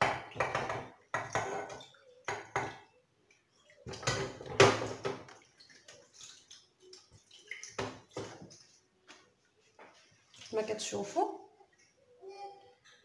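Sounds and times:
dishes knocking: 0.0s - 2.8s, 3.9s - 5.3s
water running onto a plate: 0.0s - 9.2s, 9.9s - 11.2s.

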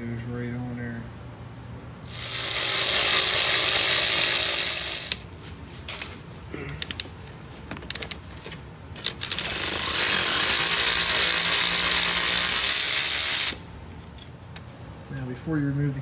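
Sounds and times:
ratchet clicks: 2.1s - 5.2s, 9.0s - 13.6s
power ratchet rattling: 2.1s - 5.3s, 8.9s - 13.6s.

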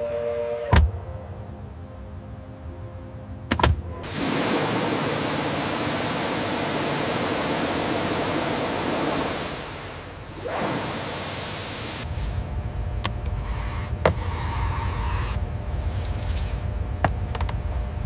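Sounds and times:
pressure washer spraying water: 4.0s - 12.1s.

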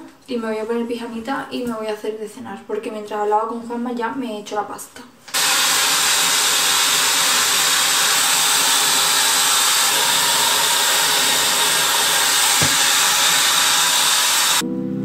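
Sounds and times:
hair dryer blowing: 5.3s - 14.6s.

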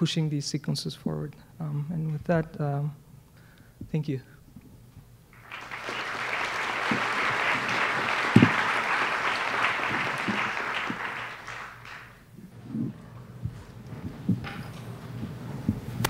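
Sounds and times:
audience applauding: 5.3s - 12.3s.

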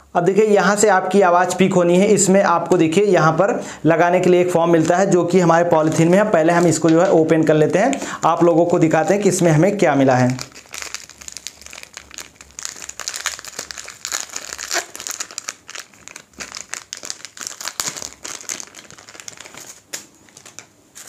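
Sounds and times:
plastic bag crinkling: 4.7s - 21.0s.

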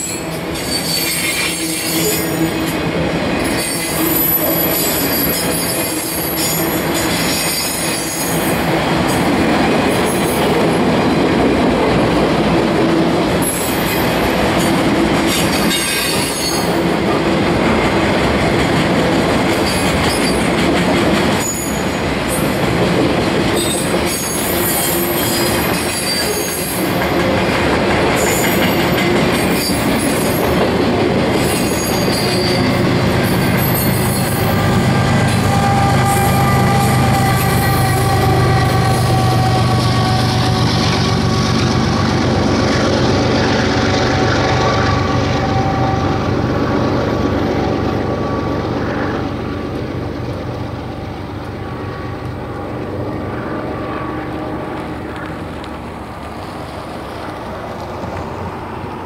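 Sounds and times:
train wheel squeal: 0.0s - 10.6s, 13.4s - 17.0s, 19.3s - 22.7s, 23.5s - 50.2s
wheels clickety-clack over rail: 0.0s - 47.9s
diesel locomotive drone: 0.0s - 59.0s.

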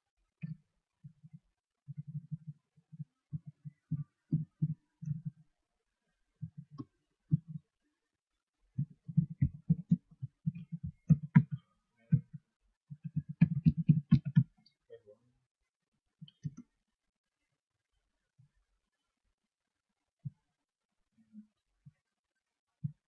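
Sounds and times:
computer keyboard typing: 13.0s - 14.6s.

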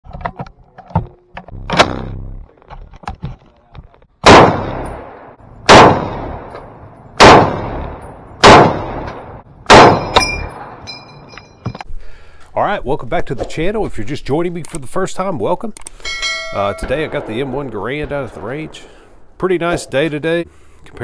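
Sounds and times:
sharp crack: 1.4s - 2.5s, 4.2s - 10.6s
rifle shots echoing: 4.2s - 10.8s, 16.8s - 19.3s.

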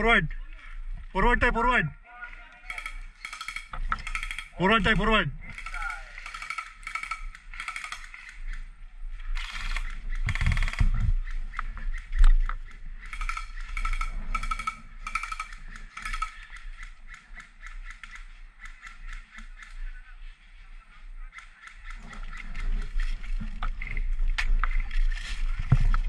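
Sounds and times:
airsoft guns clicking shots: 2.6s - 4.6s, 5.5s - 8.7s, 9.4s - 19.8s.

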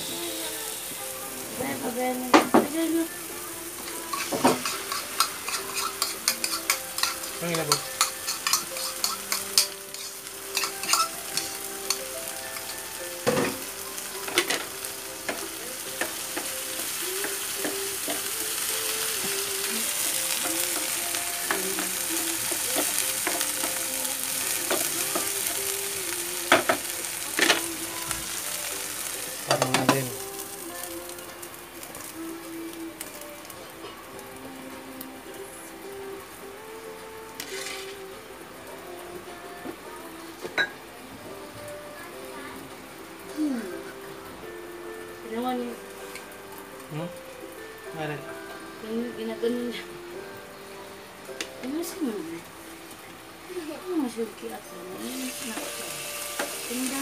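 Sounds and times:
vegetables sizzling in a pan: 0.0s - 57.0s
wooden spatula scraping a pan: 37.4s - 38.0s.

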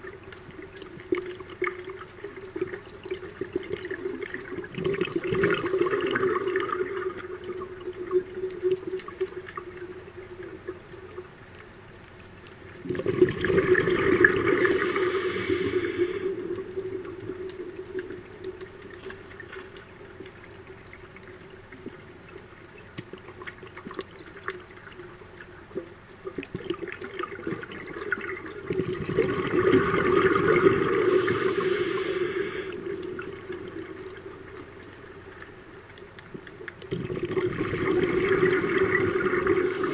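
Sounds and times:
underwater bubbles gurgling: 0.0s - 39.9s
steady low hum: 29.2s - 36.7s.

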